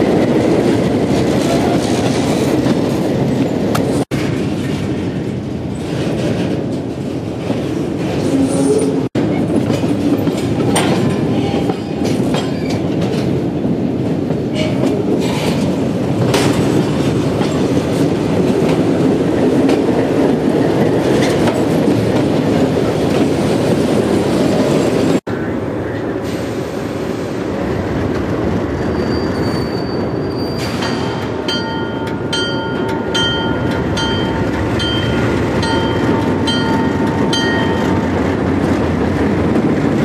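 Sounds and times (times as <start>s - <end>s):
train wheels clicking over rail joints: 9.2s - 24.8s, 30.6s - 40.0s
wheel squeals: 28.7s - 31.2s.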